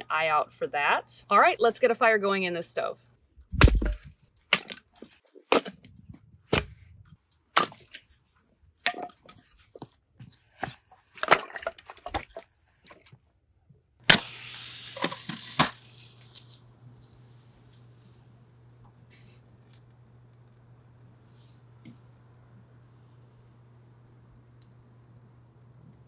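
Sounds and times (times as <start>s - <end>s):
axe chopping wood: 3.5s - 4.8s, 5.5s - 5.8s, 6.5s - 6.8s, 7.5s - 8.0s.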